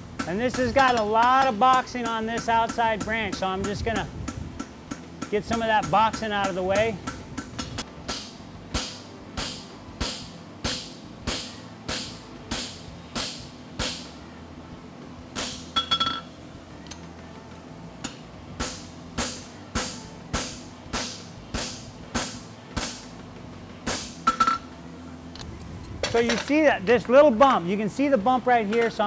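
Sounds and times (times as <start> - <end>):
hammer striking metal on anvil: 0.2 - 3.8, 4.6 - 14.1, 15.4 - 16.3, 18.1 - 23.1.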